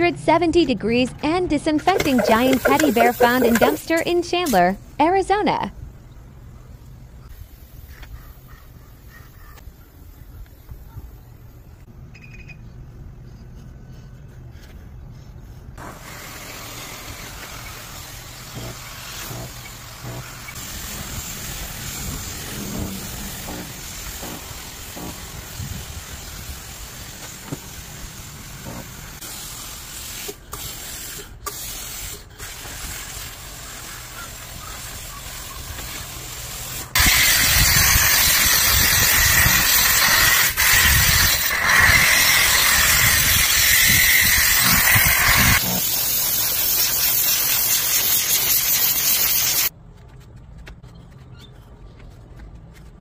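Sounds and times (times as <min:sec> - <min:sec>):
steam cleaner hissing: 0:01.9 - 0:04.6, 0:15.8 - 0:49.7.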